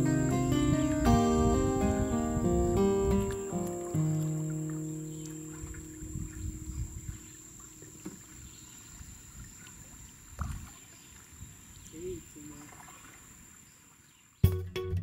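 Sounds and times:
paddle knocking against canoe: 3.2s - 11.1s
paddle strokes in water: 3.2s - 14.2s.

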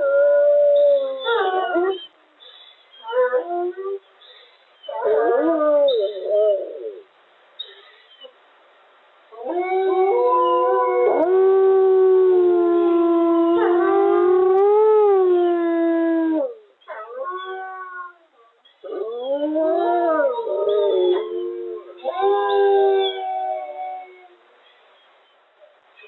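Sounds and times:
wolves howling: 18.9s - 24.4s.

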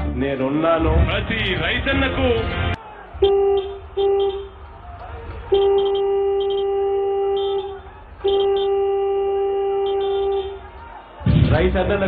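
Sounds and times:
vehicle horn blasts: 3.2s - 4.6s, 5.4s - 11.0s.

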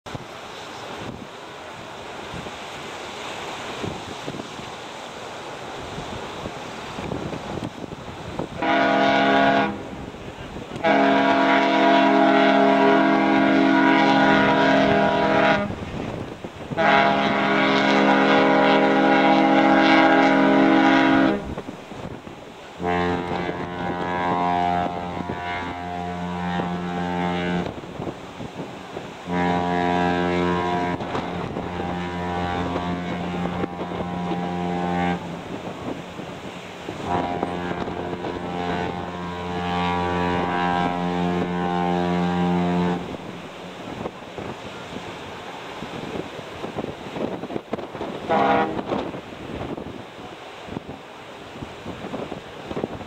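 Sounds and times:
ship whistle long blasts: 8.5s - 16.0s, 16.7s - 21.8s, 22.7s - 28.1s, 29.0s - 46.2s, 48.0s - 49.2s
deeper ship whistle blasts: 8.6s - 10.0s, 10.7s - 15.8s, 16.7s - 21.6s, 22.8s - 27.8s, 29.2s - 35.6s, 36.9s - 43.2s, 48.2s - 49.0s.

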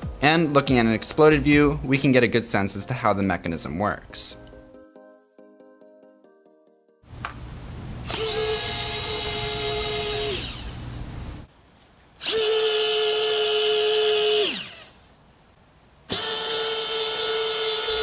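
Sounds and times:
servo motor whining: 7.1s - 11.5s, 12.2s - 15.1s, 16.1s - 18.0s.

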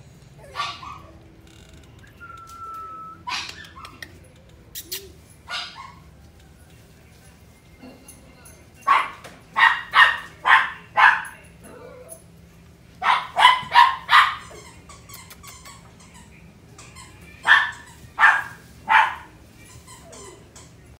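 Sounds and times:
puppy yapping: 0.4s - 1.3s, 3.0s - 6.1s, 8.9s - 12.2s, 13.0s - 20.5s.

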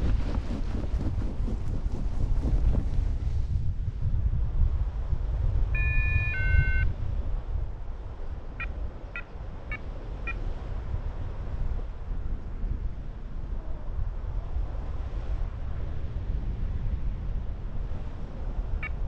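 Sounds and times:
wind buffeting microphone: 0.0s - 19.0s
variometer beeping: 5.8s - 6.9s.

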